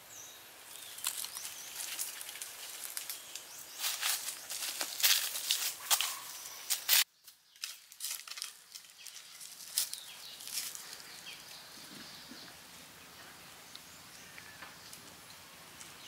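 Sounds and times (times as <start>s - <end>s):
leaf litter rustling: 0.6s - 11.6s
footsteps crunching dry leaves: 0.6s - 11.8s
wicker basket handling: 0.7s - 7.0s.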